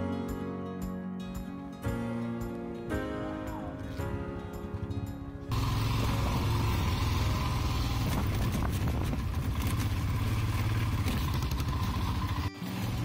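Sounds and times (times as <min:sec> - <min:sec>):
motorcycle engine running: 0:04.4 - 0:13.0.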